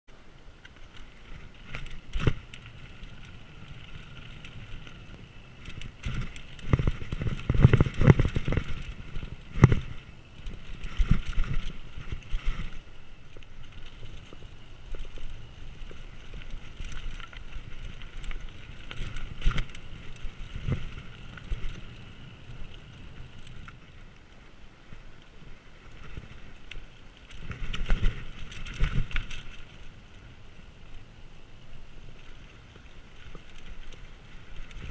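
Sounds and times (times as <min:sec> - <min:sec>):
wind and tyre noise: 0:00.1 - 0:34.9
bike rattling and knocking: 0:00.7 - 0:23.8, 0:27.3 - 0:29.8.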